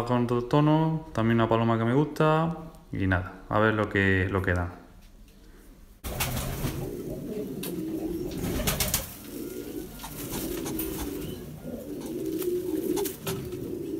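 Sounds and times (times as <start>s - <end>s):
pigeons cooing: 6.1s - 13.9s.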